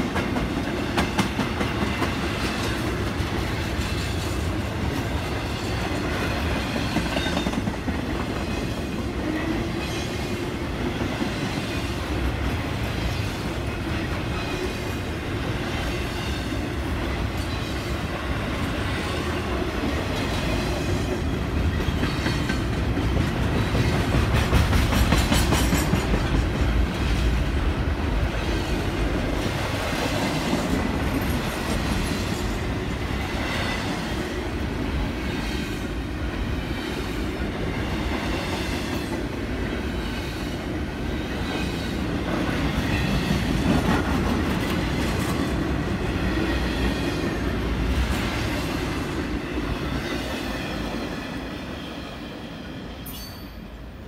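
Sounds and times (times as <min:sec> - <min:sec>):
freight train wheels clattering: 0:00.0 - 0:15.1, 0:18.8 - 0:27.6.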